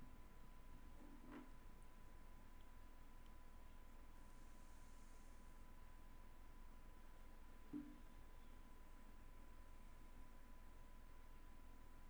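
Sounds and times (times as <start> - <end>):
faint hiss: 4.1 - 5.7.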